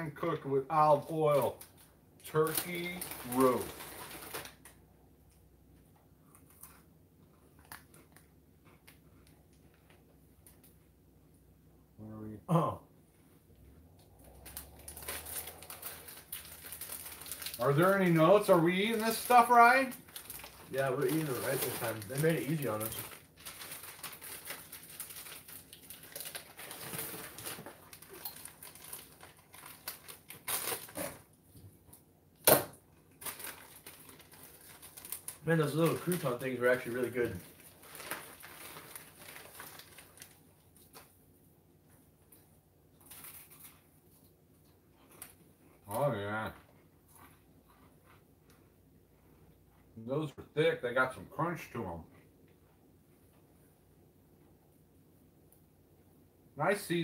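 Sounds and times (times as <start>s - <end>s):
plastic packet crinkling: 0.8s - 4.8s, 14.2s - 31.3s, 33.1s - 41.1s, 43.0s - 43.9s.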